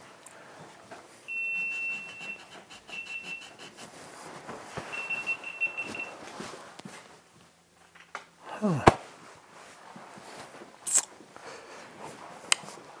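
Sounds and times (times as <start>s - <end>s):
soft handling noise: 3.8s - 8.1s
high-pitched electronic beeping: 4.9s - 6.1s.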